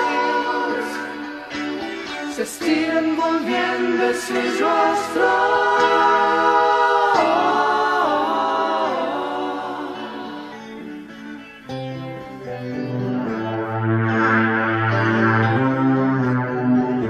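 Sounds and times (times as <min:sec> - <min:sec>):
voices singing in harmony: 0:00.0 - 0:11.6.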